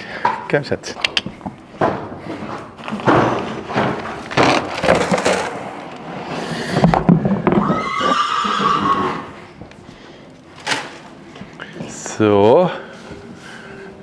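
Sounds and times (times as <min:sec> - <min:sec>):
horse whinnying: 0:07.5 - 0:09.4.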